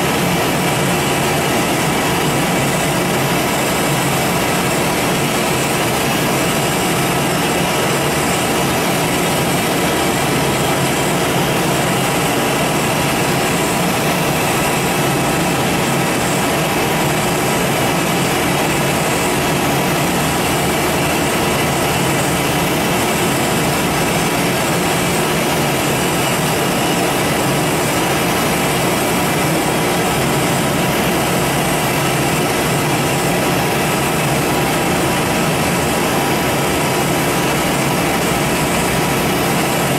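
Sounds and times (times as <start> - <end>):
lathe mechanical hum and hiss: 0.0 - 39.9.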